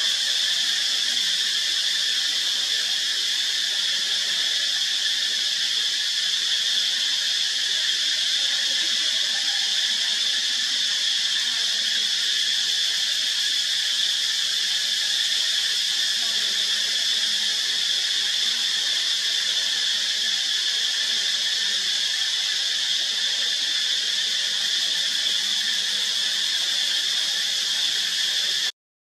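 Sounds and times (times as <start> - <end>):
insect chorus drone: 0.0 - 28.7.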